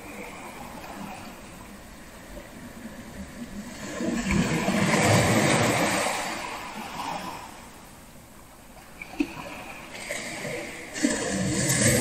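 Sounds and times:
ocean wave breaking: 0:03.7 - 0:07.7, 0:09.2 - 0:12.0.

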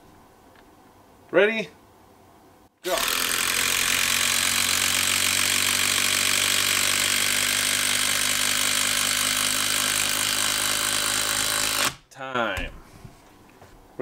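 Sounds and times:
impact driver hammering screw into wood: 0:02.9 - 0:12.0.

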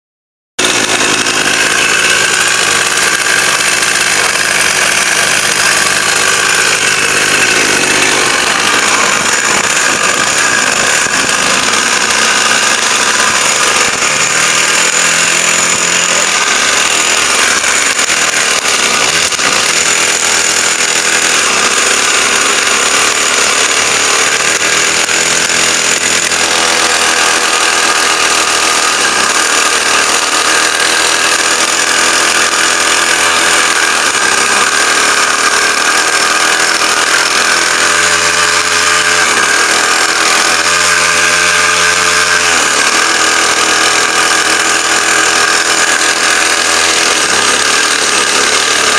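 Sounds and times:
two-stroke motorbike engine running: 0:00.6 - 0:48.9.

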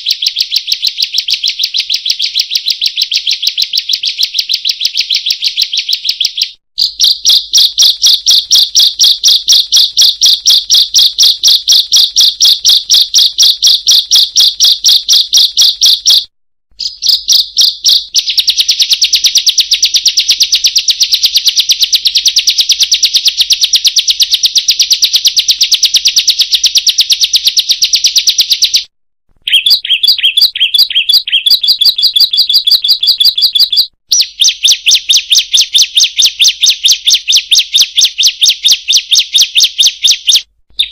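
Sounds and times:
bird chirping rapidly: 0:00.0 - 0:40.9.

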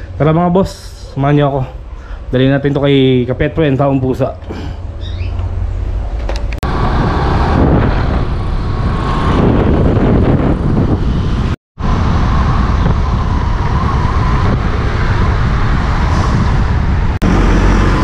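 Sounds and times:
road traffic: 0:00.0 - 0:18.0
wind rumble on microphone: 0:05.2 - 0:18.0.

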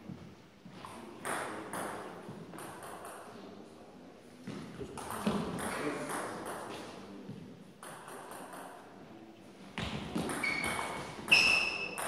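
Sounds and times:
short high-pitched squeaks: 0:10.4 - 0:12.0.

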